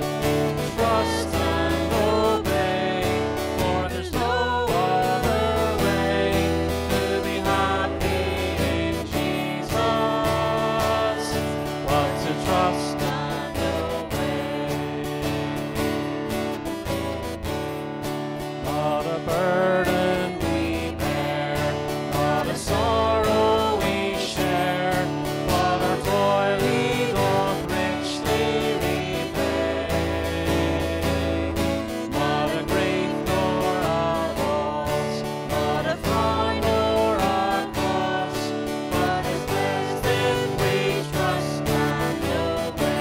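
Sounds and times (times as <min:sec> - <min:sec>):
voices singing a hymn: 0:00.0 - 0:16.0, 0:18.6 - 0:43.0
strummed acoustic guitar: 0:00.0 - 0:43.0.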